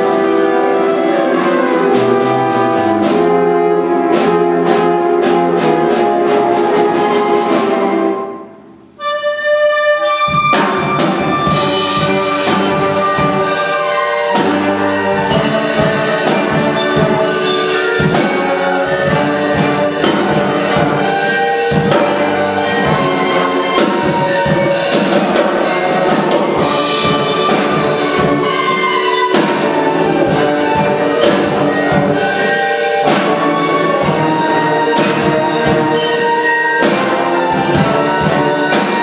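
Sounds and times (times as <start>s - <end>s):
wind band playing: 0.0s - 39.0s
drum kit beat: 10.3s - 39.0s.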